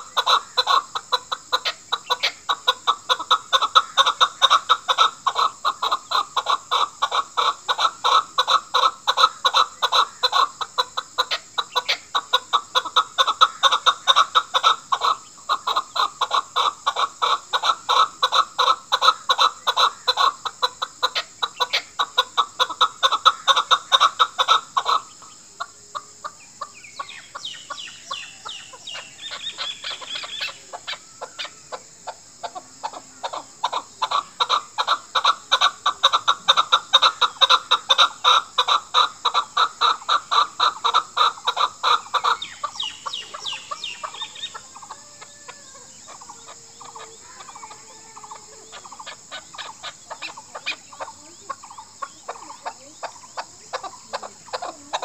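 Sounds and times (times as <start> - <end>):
fainter higher bird calls: 0.0 - 55.0
partridge chuck calls: 0.0 - 55.0.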